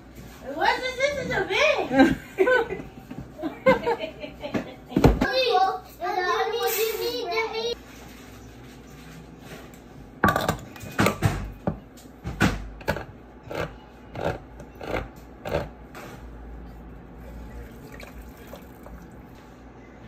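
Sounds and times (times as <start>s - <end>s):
liquid pouring into pot: 17.2s - 19.3s.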